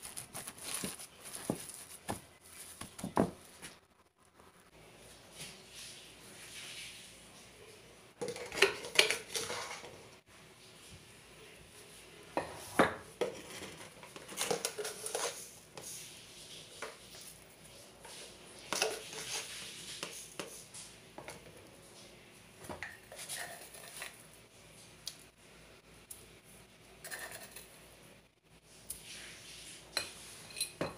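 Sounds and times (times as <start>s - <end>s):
metal spoon clinking and scraping: 13.3s - 15.5s, 23.1s - 24.2s, 27.0s - 27.8s, 30.0s - 30.9s.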